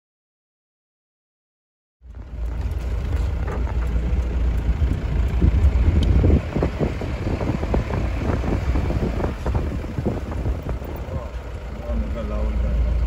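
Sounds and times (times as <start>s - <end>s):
engine and road rumble: 2.0s - 13.0s
vehicle knocks and rattles: 2.2s - 11.8s.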